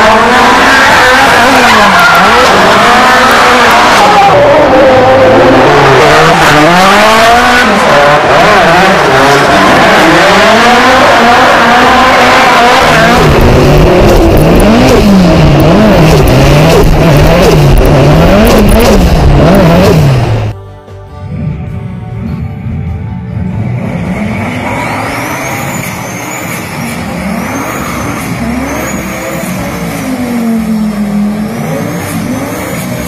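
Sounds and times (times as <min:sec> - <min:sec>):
car engine revving: 0:00.0 - 0:20.6, 0:21.3 - 0:33.0
second car revving over low rumble: 0:00.0 - 0:20.6
tyres squealing while sliding: 0:25.0 - 0:28.2.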